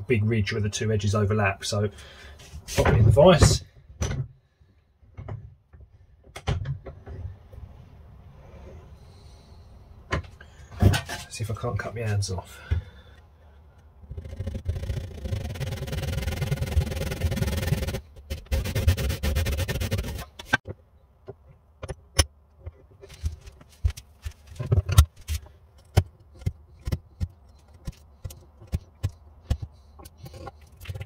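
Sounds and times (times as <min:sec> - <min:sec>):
back saw rasping through wood: 0:14.1 - 0:20.6.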